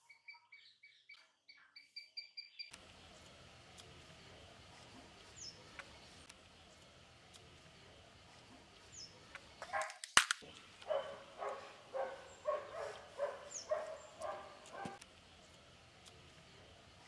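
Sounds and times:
bird chirping: 0.0s - 9.8s, 10.4s - 17.0s
dog barking: 9.6s - 10.0s, 10.8s - 15.0s
sharp crack: 9.6s - 10.6s.

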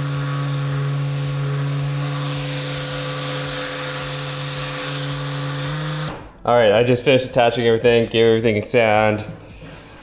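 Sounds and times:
orbital sander on wood: 0.0s - 6.1s.

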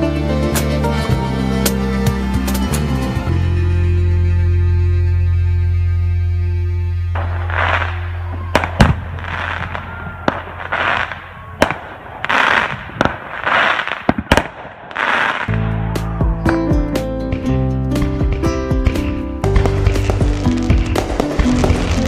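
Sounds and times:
music: 0.0s - 10.3s, 15.2s - 22.0s
firework shells bursting: 7.2s - 15.5s
hissing crackle of fireworks: 7.2s - 15.6s, 19.5s - 22.0s.

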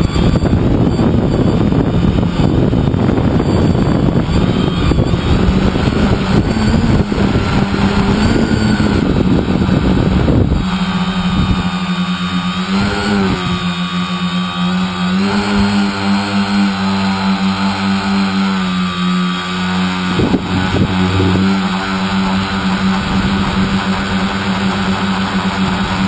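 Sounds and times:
wind buffeting on microphone: 0.0s - 13.7s, 19.7s - 26.0s
drone motors whining: 0.0s - 26.0s.

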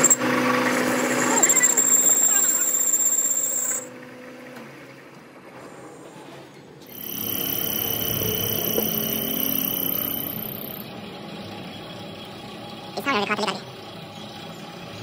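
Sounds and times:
engine running: 0.0s - 15.0s
steady high whine: 6.9s - 13.6s.

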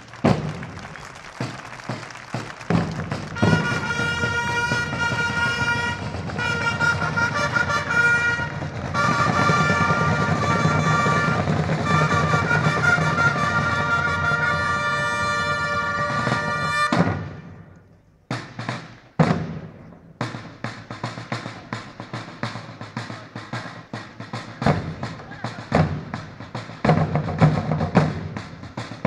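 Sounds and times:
trumpet fanfare: 0.0s - 17.7s
drumming: 0.0s - 29.0s.

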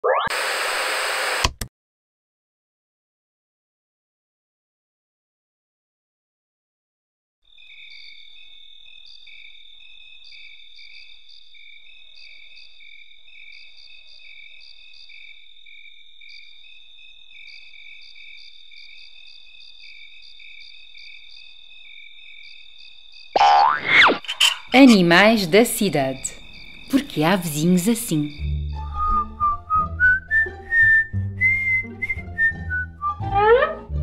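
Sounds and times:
crickets chirping: 7.5s - 29.4s.

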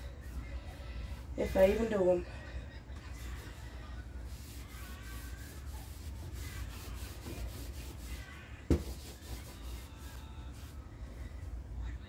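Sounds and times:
wipe rubbing on counter: 3.1s - 10.8s.

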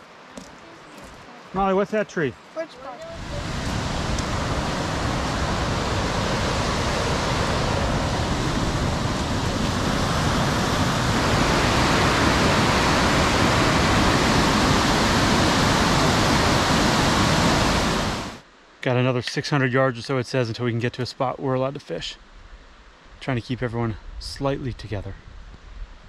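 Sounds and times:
white water rushing: 2.7s - 18.4s.

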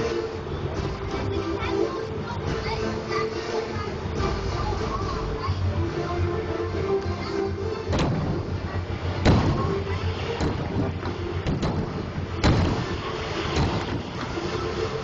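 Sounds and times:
steady background rumble: 0.0s - 15.0s
fireworks bangs: 8.0s - 14.9s
small fireworks pops: 9.2s - 14.5s.

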